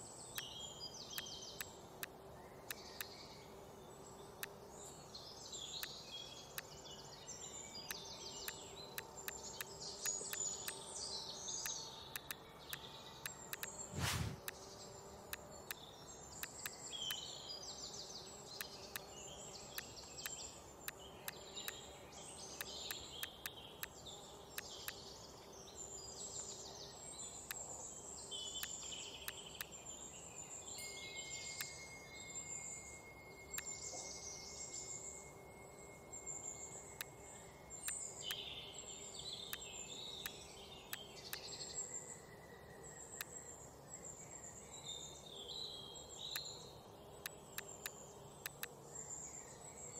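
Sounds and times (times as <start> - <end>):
sharp clicks: 11.6 - 12.4, 13.5 - 14.6, 47.6 - 48.7.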